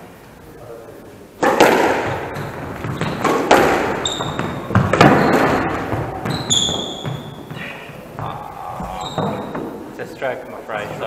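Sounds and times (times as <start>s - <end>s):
squash ball smacks echoing: 1.4s - 8.2s
shoes squeaking on wooden floor: 2.0s - 9.9s.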